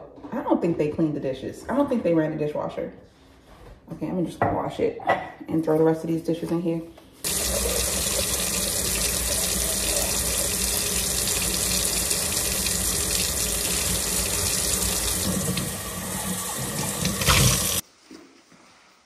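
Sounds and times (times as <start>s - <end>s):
faucet running into steel sink: 7.2s - 17.8s
water splashing on mug: 7.2s - 17.8s.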